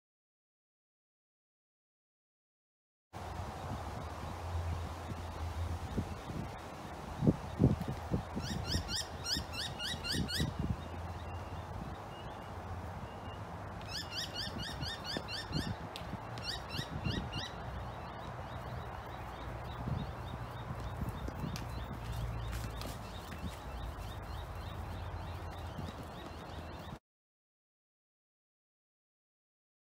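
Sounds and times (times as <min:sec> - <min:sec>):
bird singing whistled notes: 0:08.4 - 0:12.5, 0:13.1 - 0:15.8, 0:16.4 - 0:27.0.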